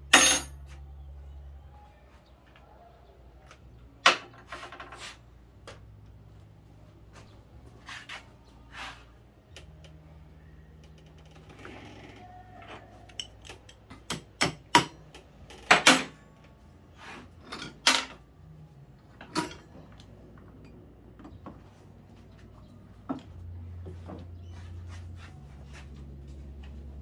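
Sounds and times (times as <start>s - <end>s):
metallic clanks of hand tools: 0.1s - 0.6s, 19.2s - 19.8s.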